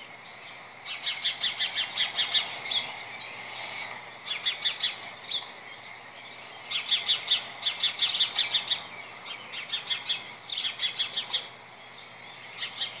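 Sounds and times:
eaglets chirping through speaker: 0:00.9 - 0:05.5.

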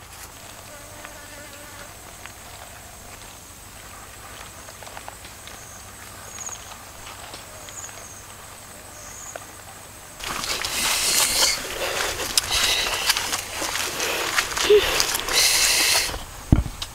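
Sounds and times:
insect high drone: 0:00.3 - 0:16.5.

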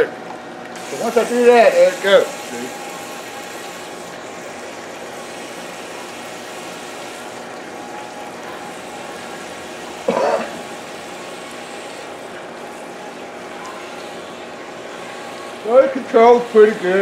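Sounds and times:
electric motors whining: 0:00.0 - 0:17.0
person coughing: 0:10.0 - 0:10.6.

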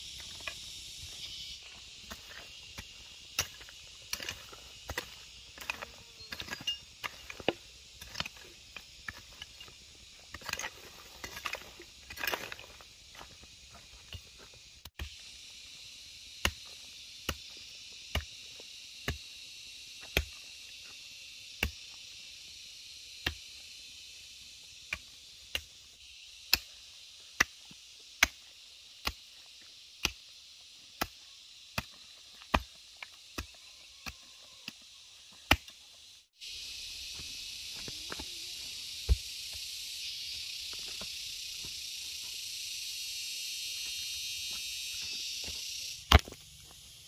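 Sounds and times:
hand tool chopping ground: 0:00.0 - 0:19.4, 0:20.0 - 0:22.2, 0:23.2 - 0:23.6, 0:24.4 - 0:36.0, 0:46.0 - 0:46.4
steady high hiss: 0:00.0 - 0:33.4, 0:35.5 - 0:47.0.

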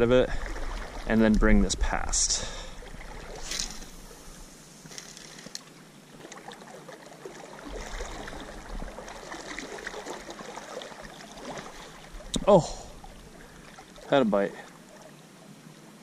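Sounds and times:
river water flowing: 0:00.0 - 0:16.0
fishing rod swish: 0:03.3 - 0:04.2.

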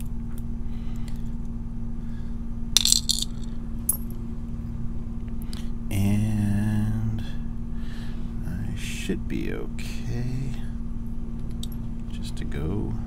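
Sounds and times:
metal lock parts clinking: 0:02.8 - 0:04.1.

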